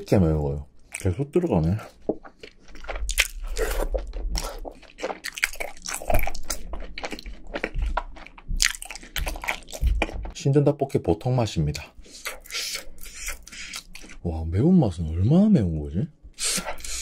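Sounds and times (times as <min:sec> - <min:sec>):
person chewing crunchy food: 0:00.8 - 0:10.4, 0:12.0 - 0:14.3.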